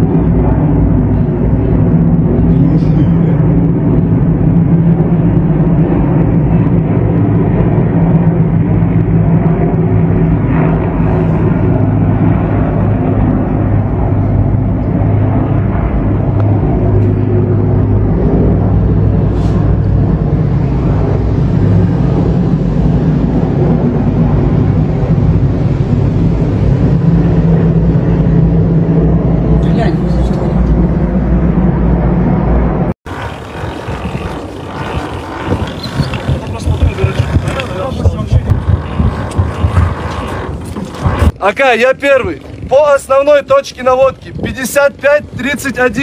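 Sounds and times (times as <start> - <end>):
helicopters flying overhead: 0.0 - 46.0.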